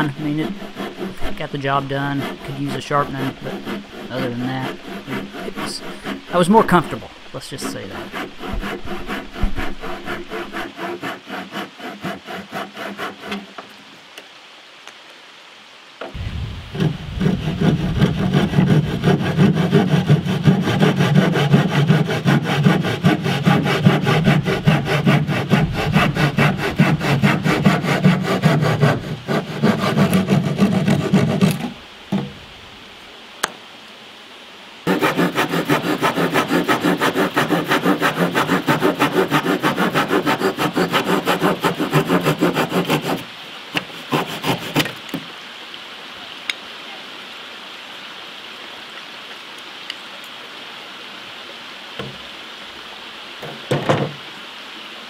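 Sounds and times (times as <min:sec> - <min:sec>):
handsaw cutting wood: 0:00.0 - 0:13.6, 0:16.8 - 0:32.2, 0:34.9 - 0:45.0.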